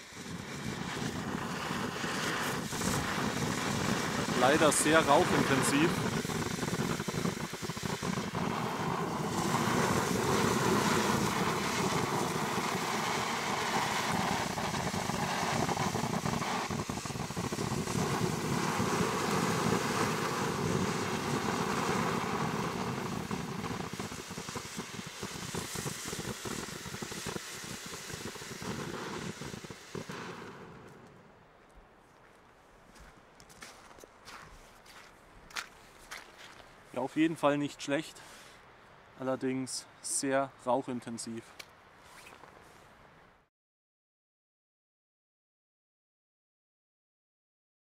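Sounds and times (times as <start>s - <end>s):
firework fountain hissing: 0.0s - 31.4s, 35.5s - 41.4s.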